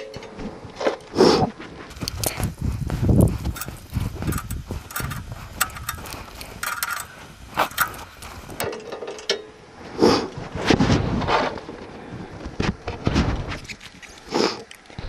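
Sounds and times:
metal clicks and clinks: 3.2 - 9.5.

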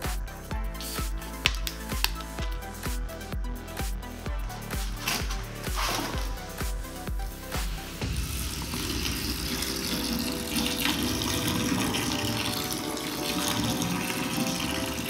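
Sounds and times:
background music: 0.0 - 15.0
soda fizzing: 8.0 - 15.0.

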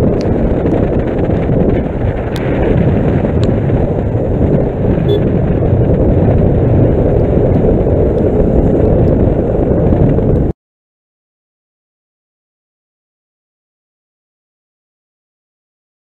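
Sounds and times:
motorcycle road noise: 0.0 - 10.5
wind rushing over microphone: 0.0 - 10.6.

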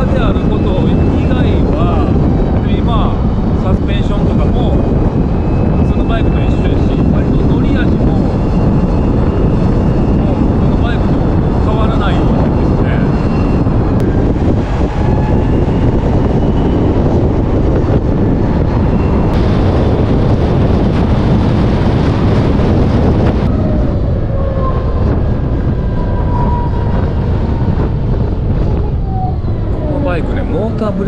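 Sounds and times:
wind and road noise: 0.0 - 31.0
thin gliding whines: 22.5 - 31.0.

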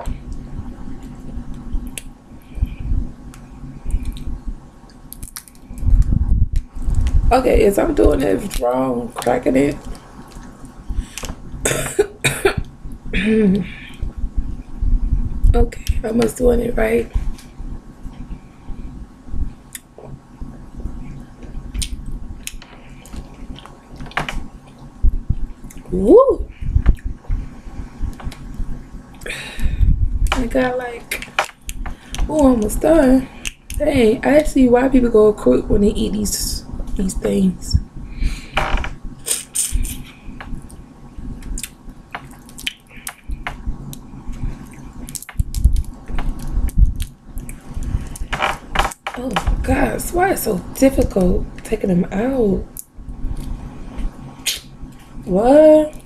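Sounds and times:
crawfish shells cracking: 5.0 - 5.8, 41.4 - 49.2
shells cracking with wet squishing: 5.1 - 5.7.

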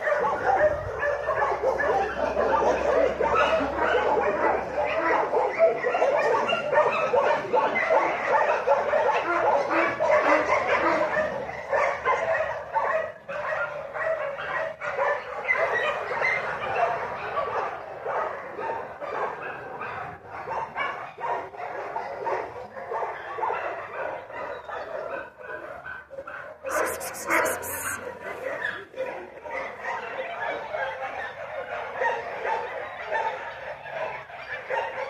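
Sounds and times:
dog barking and whining: 0.0 - 16.5, 26.6 - 30.2.

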